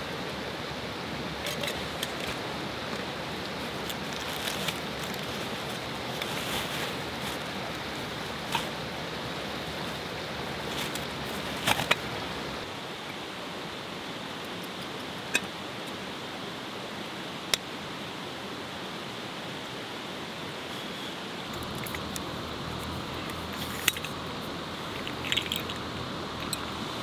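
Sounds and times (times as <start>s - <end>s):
stream rushing over rocks: 0.0s - 27.0s
camp cooking gear clicking: 1.4s - 8.9s, 10.6s - 12.2s, 21.5s - 26.8s.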